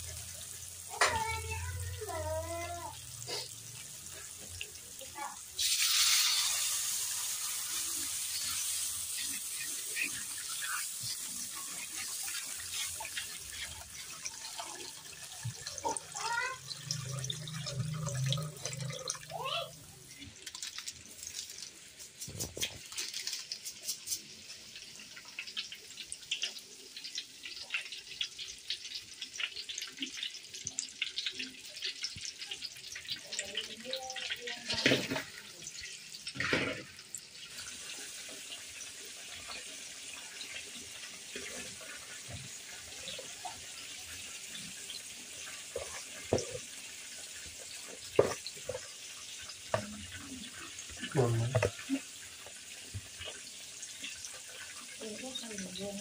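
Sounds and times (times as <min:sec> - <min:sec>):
water running from a tap: 0:00.0 - 0:56.0
small splashes and clatters: 0:09.2 - 0:38.6.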